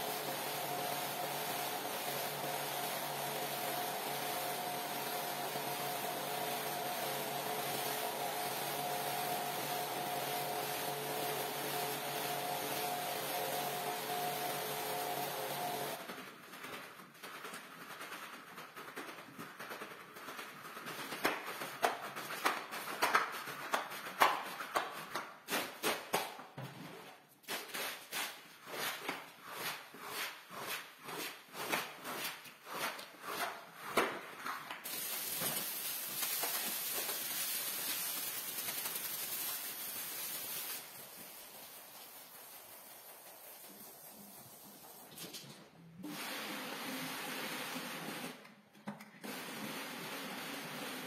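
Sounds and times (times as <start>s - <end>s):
squeegee scraping wet rug: 0.0s - 45.3s
water pouring onto rug: 34.8s - 45.1s.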